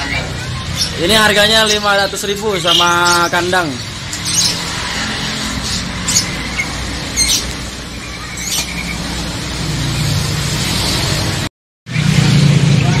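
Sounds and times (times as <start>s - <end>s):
high bird chirps: 0.0s - 10.2s
low traffic rumble: 0.0s - 13.0s
motor vehicle passing: 0.0s - 13.0s.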